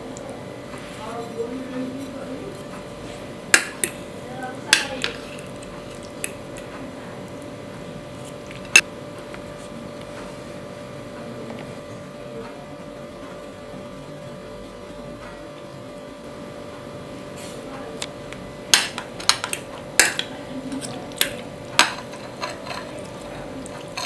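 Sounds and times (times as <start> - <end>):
cutlery clinking on ceramic bowl: 18.8 - 24.0.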